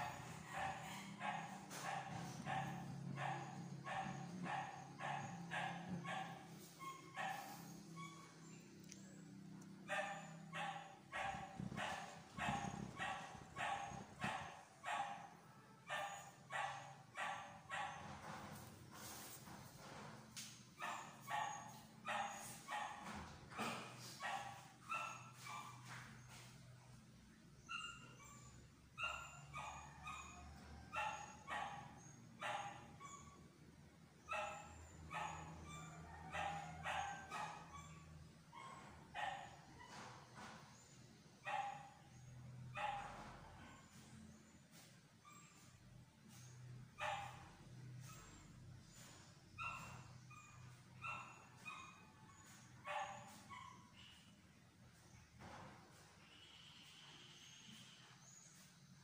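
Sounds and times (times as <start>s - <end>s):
dog barking: 0.0s - 9.0s, 9.8s - 18.3s, 20.8s - 26.4s, 27.7s - 33.4s, 34.2s - 40.1s, 41.4s - 44.0s, 46.3s - 48.4s, 49.6s - 54.2s.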